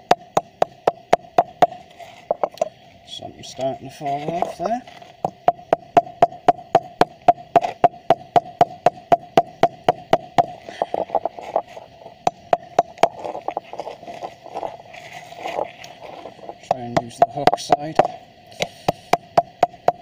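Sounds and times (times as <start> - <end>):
hammer striking steel core: 5.2 - 11.3, 12.2 - 13.7, 16.5 - 18.2.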